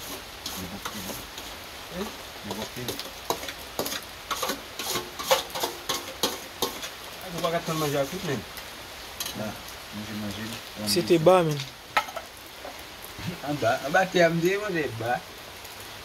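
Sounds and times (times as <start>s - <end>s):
metal spoon scraping a metal pot: 2.5s - 7.9s.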